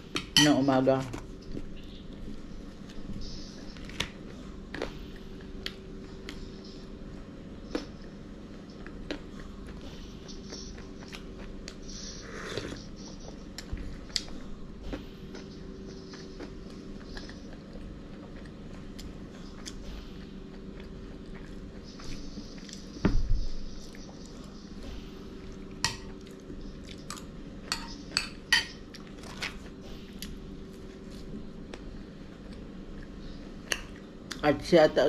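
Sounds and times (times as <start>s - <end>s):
low steady hum: 0.0s - 35.0s
dishes and cutlery clinking: 27.7s - 28.9s.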